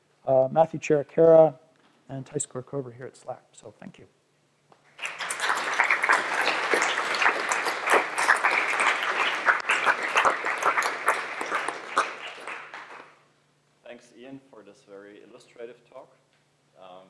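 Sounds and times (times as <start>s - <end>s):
audience applauding: 4.9s - 13.2s.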